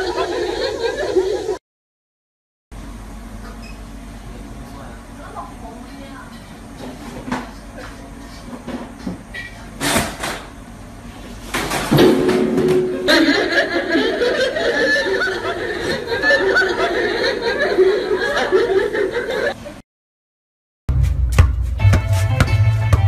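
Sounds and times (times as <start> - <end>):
people laughing loudly: 0.0 - 1.6, 12.9 - 19.7.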